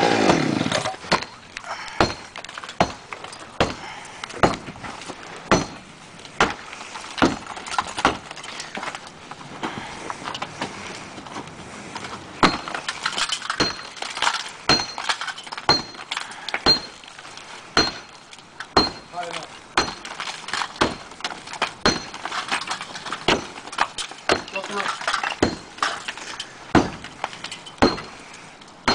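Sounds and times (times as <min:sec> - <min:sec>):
debris clattering: 0:00.0 - 0:28.9
hand tool striking concrete: 0:18.8 - 0:20.1, 0:24.3 - 0:26.0, 0:26.8 - 0:27.0, 0:27.8 - 0:28.2.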